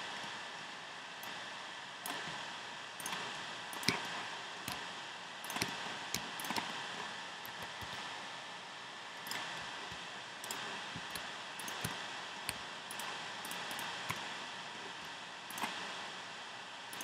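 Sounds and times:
steady background hiss: 0.0 - 17.0
computer mouse and keyboard clicking: 3.0 - 8.1, 9.2 - 14.4, 15.0 - 15.9.

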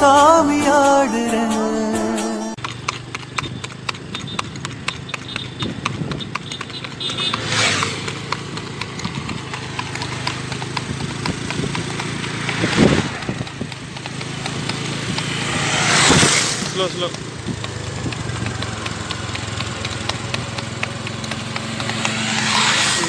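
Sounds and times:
horse hooves on asphalt: 2.6 - 23.0
rushing noise: 11.0 - 17.1, 21.6 - 23.0.

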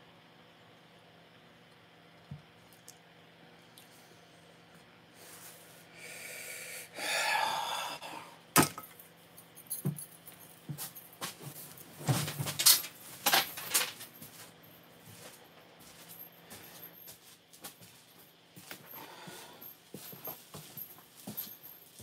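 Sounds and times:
man exhaling: 5.8 - 8.4
knocks and rustles: 9.7 - 14.5.

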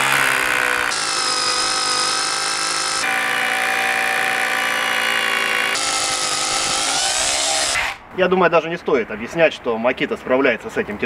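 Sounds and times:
rotary hammer drilling into concrete: 0.0 - 8.0.

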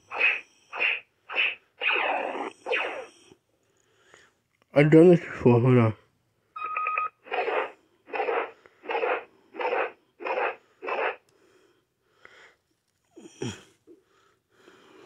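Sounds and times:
toy electronic bursts: 0.0 - 3.2, 6.7 - 11.2.

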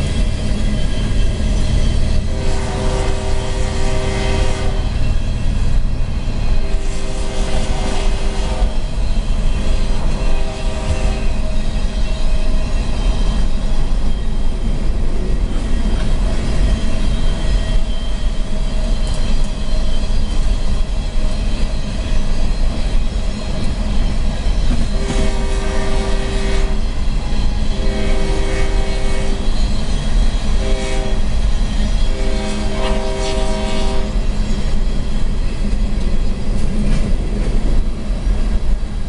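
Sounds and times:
freight train rumble: 0.0 - 39.0
locomotive air horn: 2.2 - 5.2, 6.6 - 8.8, 9.9 - 11.5, 24.8 - 26.9, 27.7 - 29.6, 30.5 - 31.4, 32.1 - 34.4.

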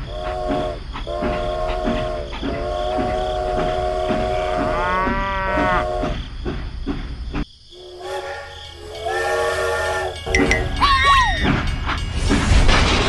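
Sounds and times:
rhythmic chugging clicks: 0.0 - 4.8
steam train whistle: 0.0 - 6.2, 7.8 - 11.7.

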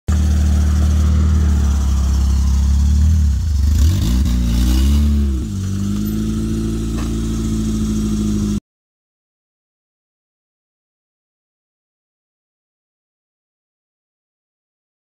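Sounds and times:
car engine revving and idling: 0.1 - 8.6.

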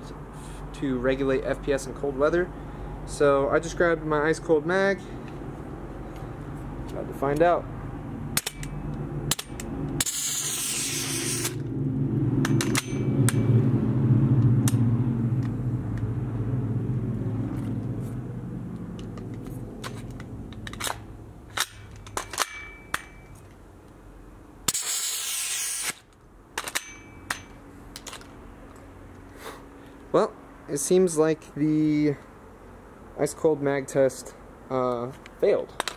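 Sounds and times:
low drone: 7.6 - 22.0.

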